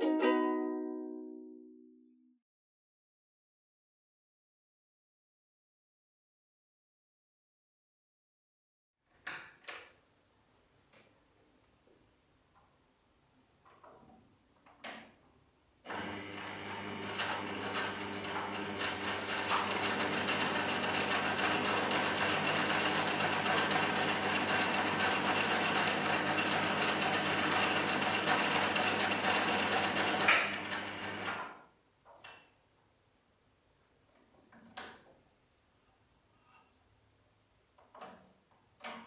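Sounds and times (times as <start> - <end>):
sewing machine stitching: 15.9 - 31.6
small sewing machine clicks: 30.0 - 31.6.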